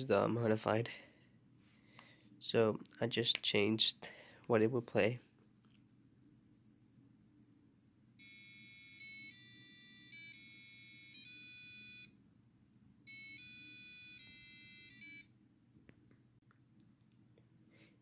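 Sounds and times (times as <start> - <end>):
piezo buzzer beeping a tune: 8.2 - 12.1, 13.1 - 15.3.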